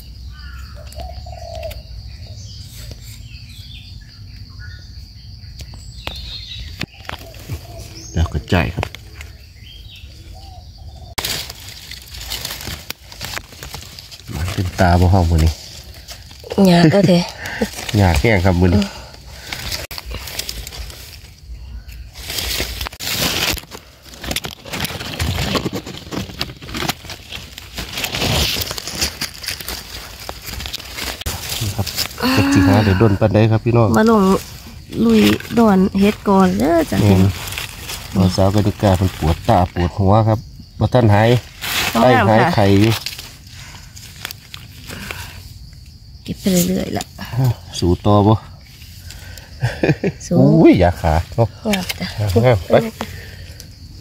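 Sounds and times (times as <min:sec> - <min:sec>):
bird chirps: 0:00.0 - 0:11.7
high insect drone: 0:00.0 - 0:54.0
dry leaves rustling and crackling: 0:11.0 - 0:39.9, 0:41.1 - 0:45.4.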